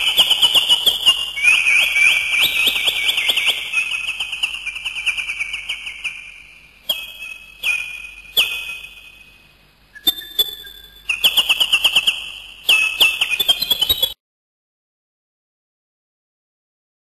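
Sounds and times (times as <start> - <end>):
high whistled notes: 0.0 - 9.3, 9.9 - 14.2
high-pitched bird-like chirping: 0.0 - 14.2.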